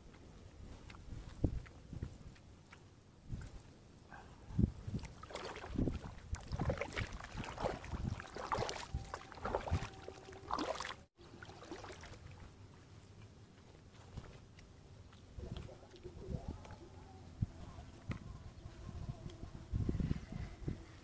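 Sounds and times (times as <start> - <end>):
paddle splashes: 5.0 - 12.6.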